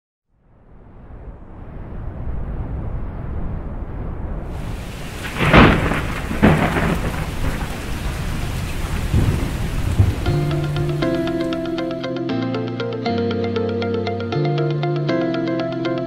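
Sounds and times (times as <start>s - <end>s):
low thunder rumble: 0.7s - 11.7s
thunder claps: 4.5s - 11.7s
rain falling steadily: 4.5s - 11.8s.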